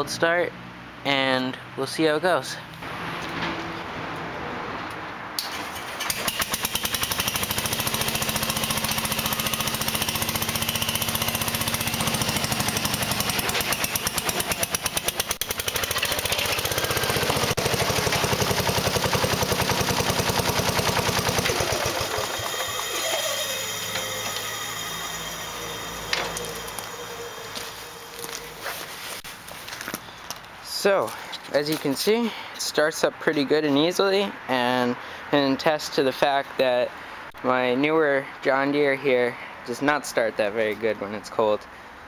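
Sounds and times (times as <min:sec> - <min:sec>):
garden tractor engine running: 0:05.4 - 0:30.0.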